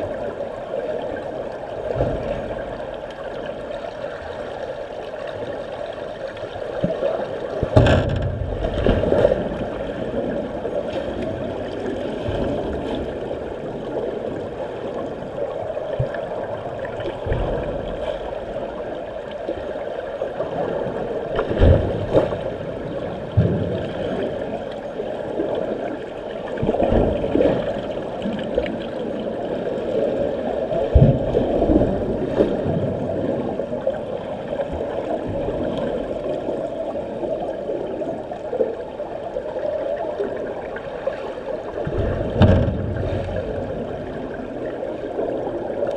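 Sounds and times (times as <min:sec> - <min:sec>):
muffled underwater water rush: 0:00.0 - 0:45.9
low underwater thumps: 0:07.6 - 0:09.6, 0:41.8 - 0:44.4.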